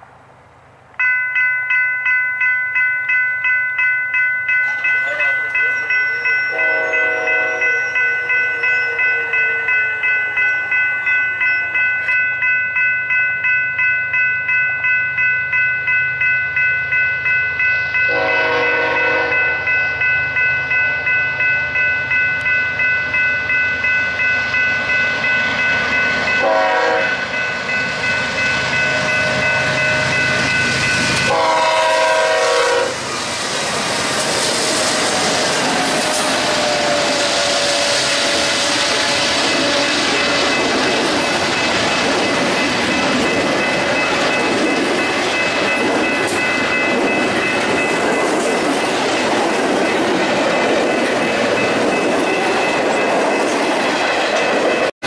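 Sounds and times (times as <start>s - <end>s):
crossing bell ringing: 1.0s - 54.9s
locomotive horn: 6.5s - 10.0s, 18.1s - 19.7s, 26.4s - 27.2s, 31.2s - 33.1s, 34.9s - 40.6s
train wheels clattering on rails: 24.0s - 54.9s.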